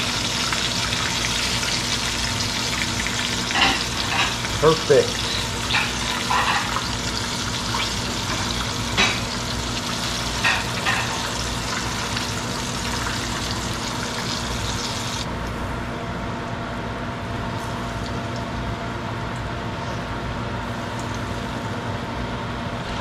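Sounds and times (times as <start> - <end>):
fish sizzling in hot oil: 0.0 - 15.3.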